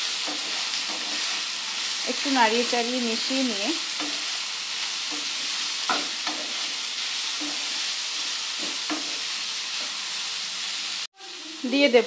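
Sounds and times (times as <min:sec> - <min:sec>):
food sizzling in frying pan: 0:00.0 - 0:12.0
wooden spatula scraping pan: 0:00.2 - 0:01.5, 0:05.0 - 0:10.0.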